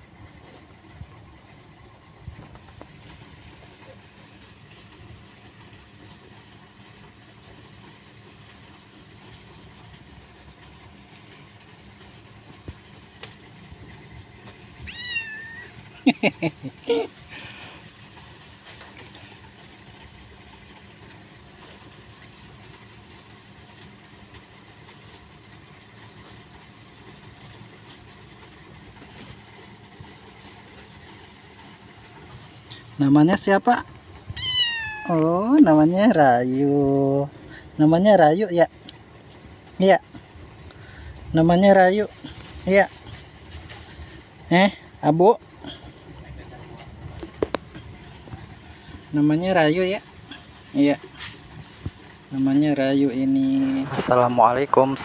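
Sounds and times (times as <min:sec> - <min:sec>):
steady background hum: 0:00.0 - 0:55.0
kitten meowing: 0:14.8 - 0:15.8, 0:34.3 - 0:35.2.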